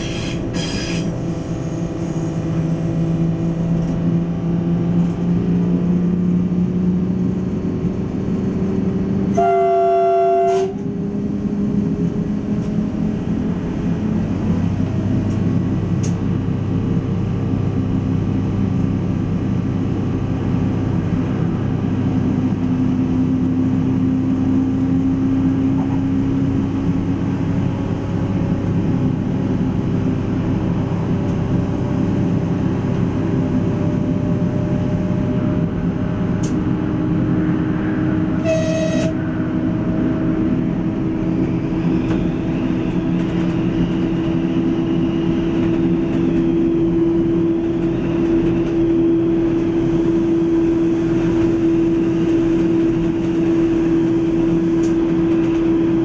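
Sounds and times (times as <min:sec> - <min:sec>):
rail noise: 0:00.0 - 0:56.0
railcar engine drone: 0:00.0 - 0:56.0
train horn toot: 0:09.3 - 0:10.9, 0:38.4 - 0:39.3.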